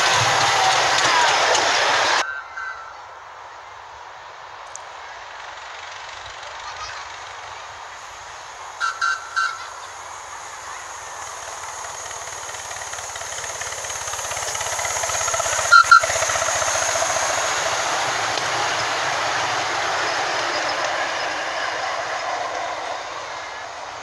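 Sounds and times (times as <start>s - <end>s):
miniature steam locomotive running: 0.0s - 24.0s
steam whistle blasts: 8.8s - 9.9s, 14.4s - 21.5s.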